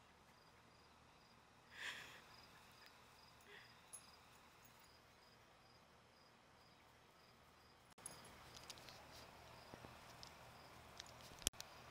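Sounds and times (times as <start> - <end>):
crickets chirping: 0.3 - 8.8, 9.4 - 10.8
faint rustles and ticks: 8.0 - 11.8.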